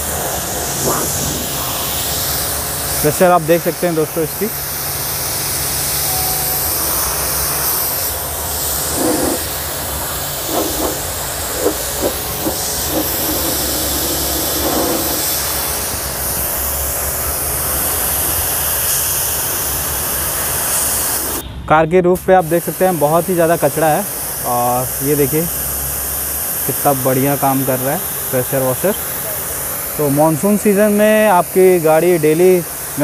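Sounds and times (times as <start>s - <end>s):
pressure washer motor hum: 0.0s - 20.2s
water jet spraying on car: 0.0s - 21.4s, 22.5s - 33.0s.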